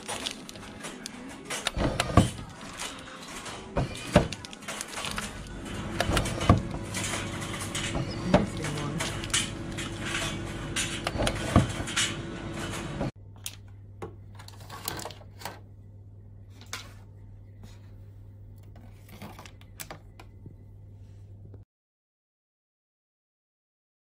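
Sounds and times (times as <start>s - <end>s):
snack packs rustling and clicking: 0.0s - 11.4s
vending machine humming: 0.0s - 21.6s.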